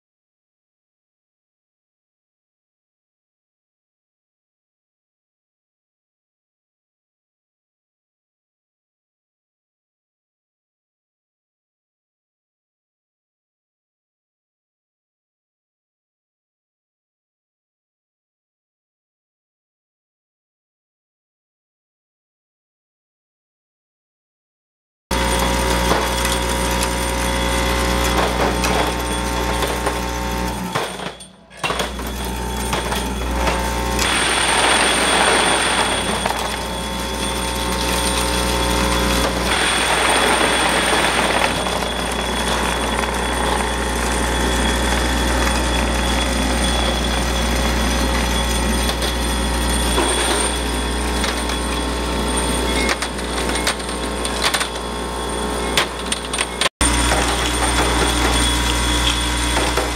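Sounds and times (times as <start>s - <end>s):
parts feeder electric hum: 25.1s - 59.9s.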